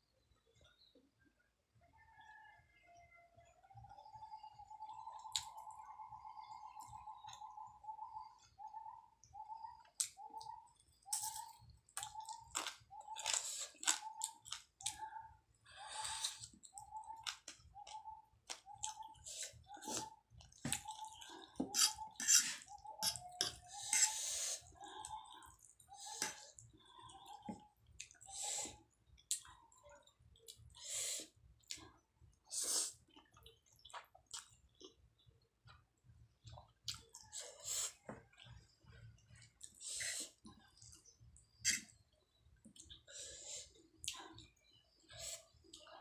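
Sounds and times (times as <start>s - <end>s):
chewing: 9.8s - 43.1s.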